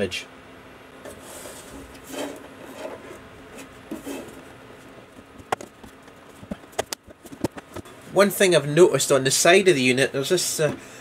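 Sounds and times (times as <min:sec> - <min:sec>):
plastic case rubbing and scraping: 0:01.1 - 0:04.5.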